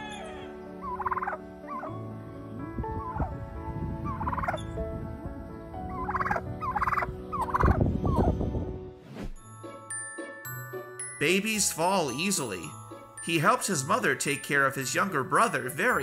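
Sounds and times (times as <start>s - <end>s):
turkey trilling calls: 0.0s - 2.0s, 3.0s - 3.3s, 4.0s - 4.6s, 5.9s - 8.3s.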